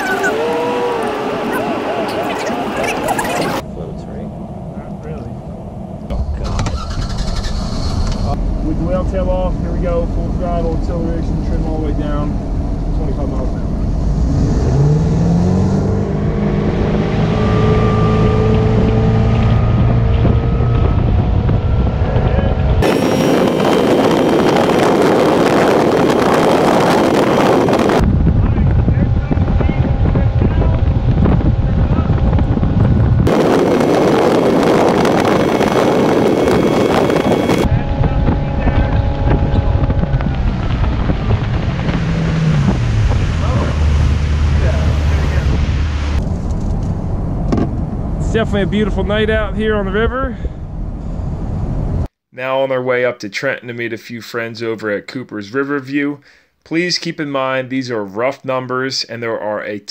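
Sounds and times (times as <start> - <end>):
boat engine accelerating: 0.0 - 52.1
wind on microphone: 0.0 - 52.1
water wash: 39.1 - 46.3.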